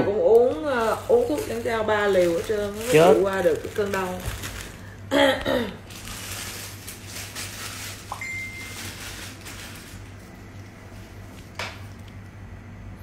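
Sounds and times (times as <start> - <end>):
steady low hum: 0.0 - 13.0
short high electronic beep: 8.2 - 8.8.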